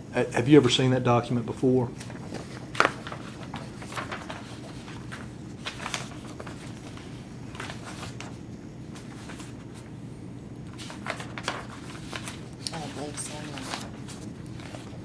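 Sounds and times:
low room hum: 0.0s - 15.0s
paper pages rustling: 2.0s - 9.9s, 10.6s - 15.0s.

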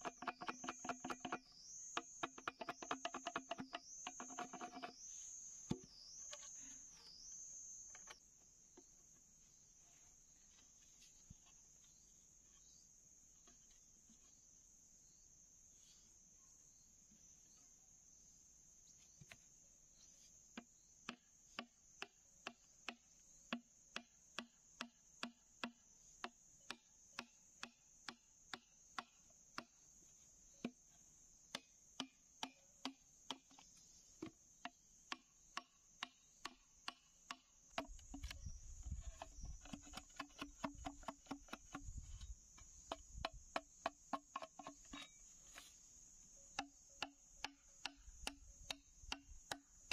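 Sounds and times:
insect chirring: 0.0s - 8.2s, 31.4s - 49.9s
machete chopping bamboo: 20.6s - 29.7s, 31.5s - 33.6s, 34.2s - 42.0s, 46.6s - 49.7s.

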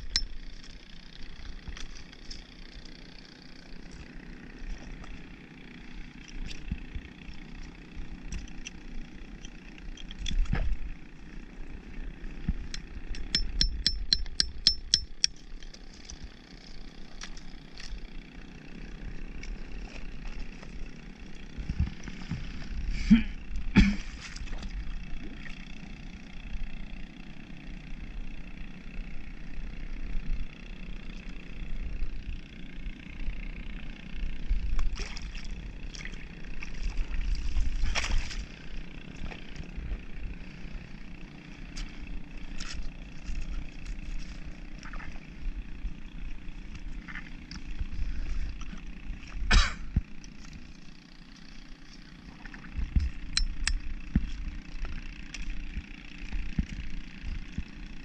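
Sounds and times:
hammer tapping metal spike: 13.2s - 15.3s.

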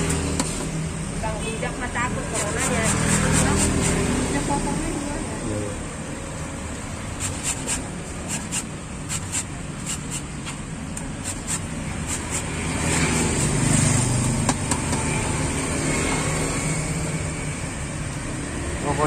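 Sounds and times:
metal grater scraping fruit: 2.2s - 4.1s, 7.1s - 10.4s, 11.2s - 13.8s.

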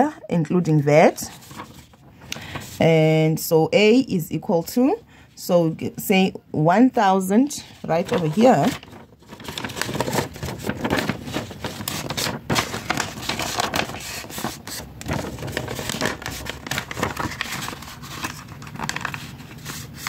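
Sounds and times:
paper rustling and crinkling: 1.2s - 2.8s, 7.7s - 20.0s
paper scraping across notebook: 7.8s - 20.0s.

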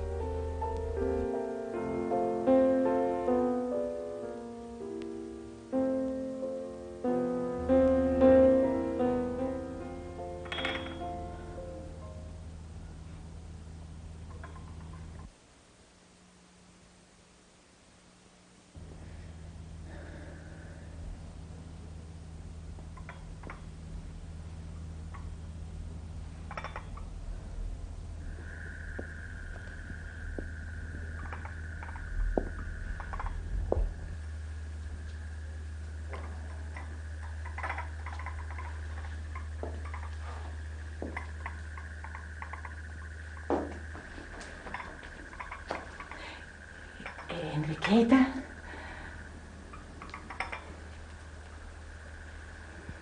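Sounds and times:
slow piano piece: 0.0s - 15.4s, 18.8s - 53.0s
low hum: 0.0s - 53.0s
thin high tone: 3.8s - 12.6s
light clink: 10.4s - 11.1s.

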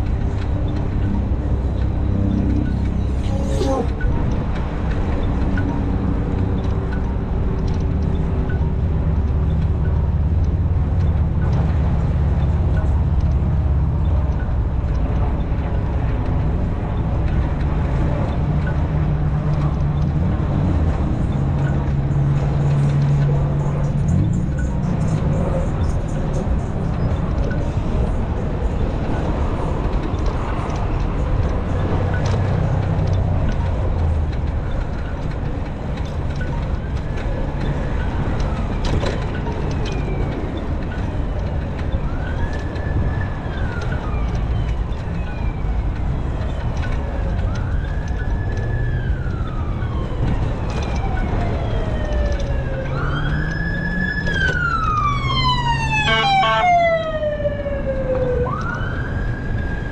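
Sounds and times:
siren wailing: 37.4s - 59.9s.

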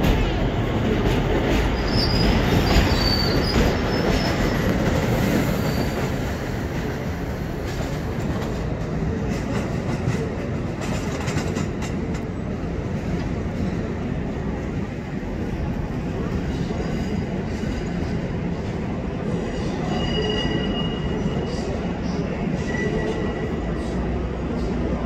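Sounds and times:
steel wheels rumbling on rails: 0.0s - 25.0s
high wheel squeal: 1.8s - 4.6s, 5.4s - 6.0s, 19.6s - 21.6s.

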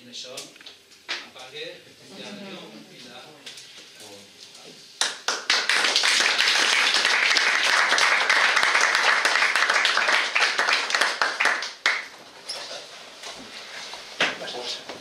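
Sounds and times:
audience applauding: 5.0s - 12.2s.

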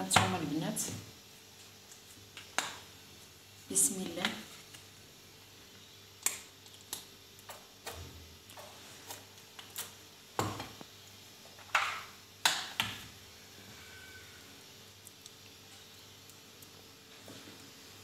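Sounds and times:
food handling noises: 6.2s - 12.1s.

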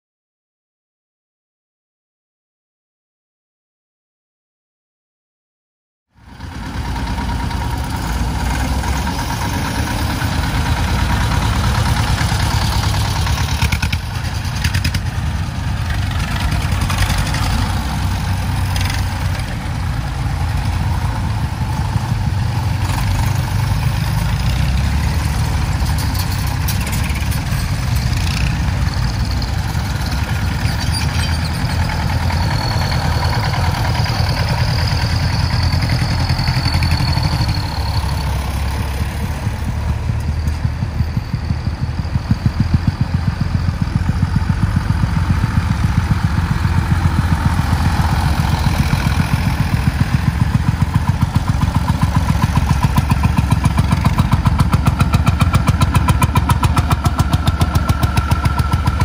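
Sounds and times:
tractor engine running: 6.1s - 59.0s.

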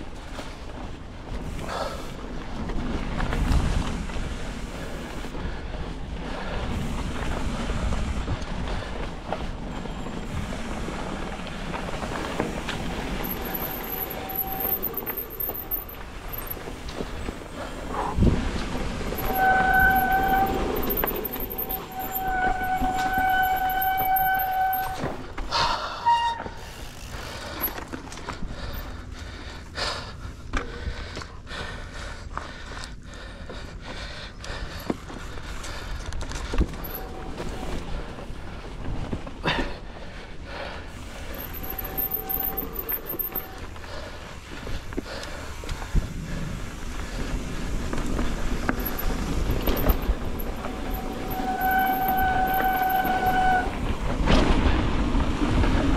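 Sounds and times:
tyres rumbling on dirt: 0.0s - 30.8s, 33.3s - 55.9s
bike clicking and rattling: 0.0s - 55.9s
bike knocks and rattles: 47.7s - 50.7s.

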